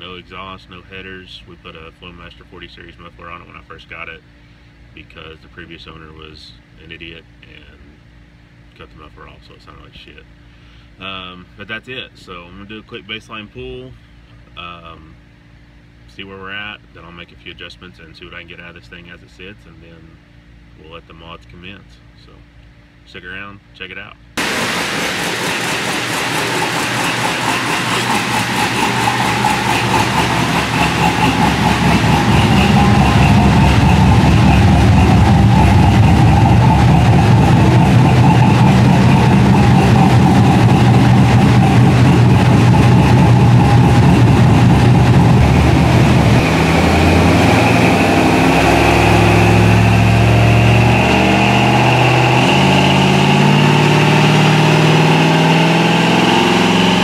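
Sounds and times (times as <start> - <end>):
engine running on dyno: 0.0 - 17.6, 24.4 - 57.0.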